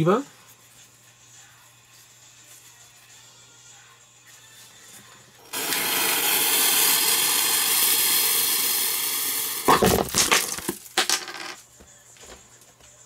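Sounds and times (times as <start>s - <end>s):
firework fuse hissing: 5.4s - 10.9s
firework loud pop: 9.6s - 10.6s
small knocks scattering: 9.7s - 11.3s.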